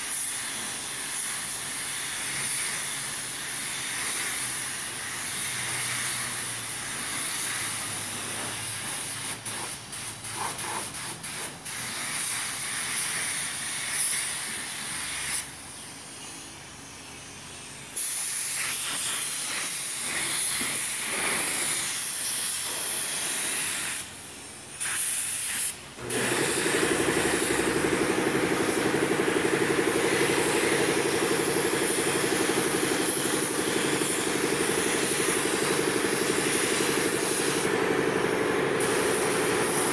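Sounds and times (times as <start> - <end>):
paint spray gun hissing: 0.0 - 39.9
steady machine hum: 26.0 - 39.9.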